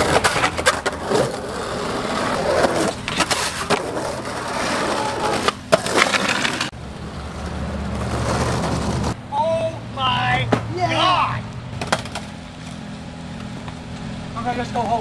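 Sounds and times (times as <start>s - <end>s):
skateboard clacks: 0.0s - 6.7s, 11.8s - 12.3s
skateboard wheels rolling on asphalt: 0.0s - 9.2s, 10.9s - 15.0s
skateboard knocking against curb: 11.8s - 12.8s.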